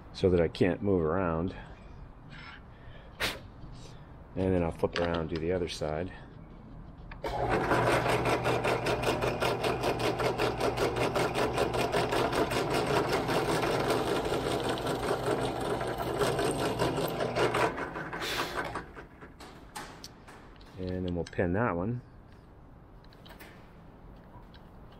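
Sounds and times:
short hiss: 0:03.2 - 0:04.0
drill press motor hum: 0:07.2 - 0:19.5.

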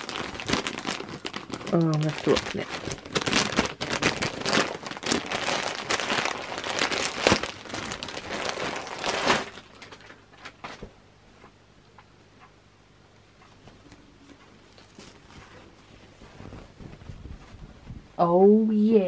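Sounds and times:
plastic bag crinkling: 0:00.0 - 0:10.8, 0:13.7 - 0:17.7.

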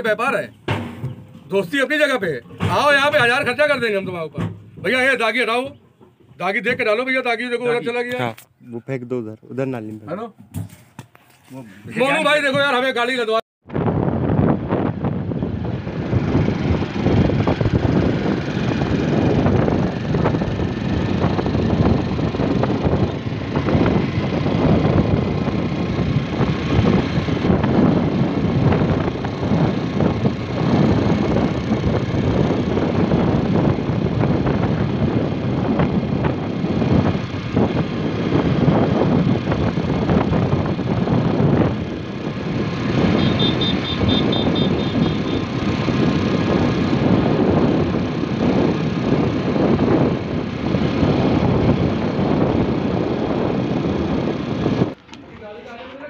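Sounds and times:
wind rushing over microphone: 0:13.6 - 0:56.0
motorcycle engine running: 0:14.2 - 0:55.1.

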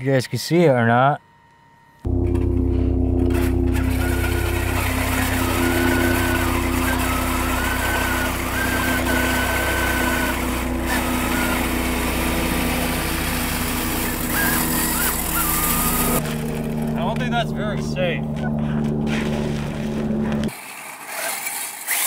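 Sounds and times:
steady motor hum: 0:01.2 - 0:20.6
electric motor whine: 0:01.2 - 0:22.0.

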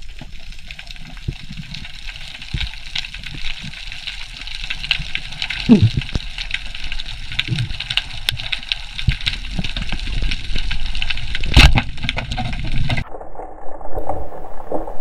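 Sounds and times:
crackle of small clicks: 0:00.0 - 0:15.0
low underwater rumble: 0:05.6 - 0:06.2, 0:11.2 - 0:15.0.

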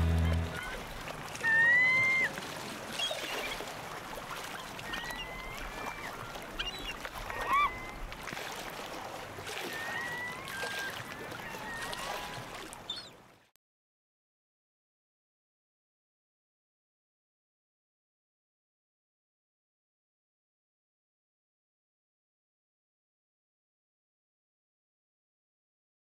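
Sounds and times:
gulls crying: 0:00.0 - 0:02.2
surf washing: 0:00.0 - 0:12.8.

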